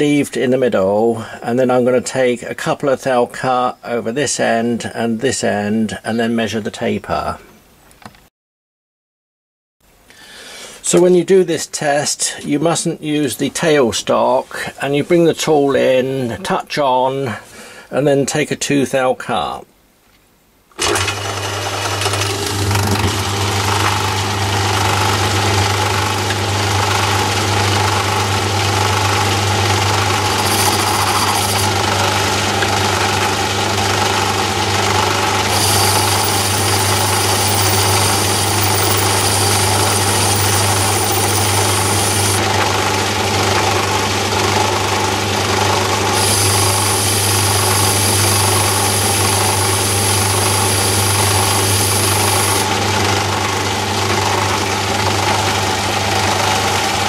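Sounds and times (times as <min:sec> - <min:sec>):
lathe motor hum: 0:20.8 - 0:57.0
high hiss of cutting: 0:30.2 - 0:31.8, 0:35.5 - 0:42.4, 0:46.2 - 0:52.7.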